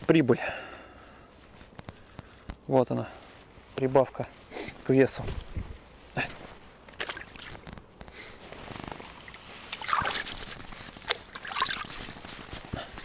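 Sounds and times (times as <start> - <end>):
water splashing in a bucket: 6.9 - 7.7, 8.9 - 12.2.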